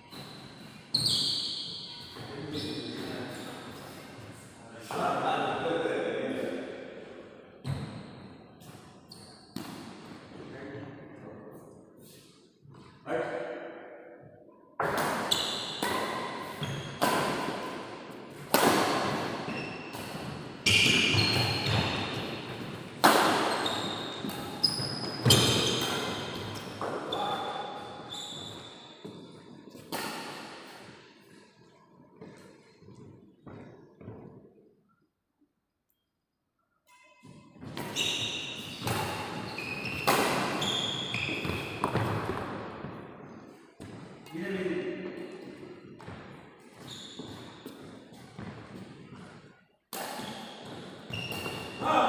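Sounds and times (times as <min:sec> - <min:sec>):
sneakers squeaking on floor: 0:00.0 - 0:04.4, 0:07.6 - 0:10.5, 0:14.8 - 0:34.5, 0:36.9 - 0:44.4, 0:45.0 - 0:52.0
badminton racket hitting shuttlecock: 0:14.8 - 0:26.6, 0:38.6 - 0:40.6, 0:49.9 - 0:51.8.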